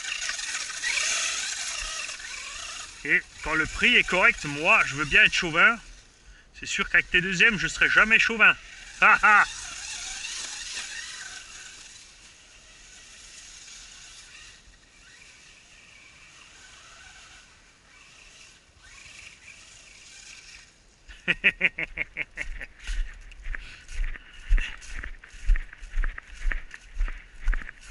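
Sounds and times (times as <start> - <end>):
electric motor whine: 0.0 - 20.8.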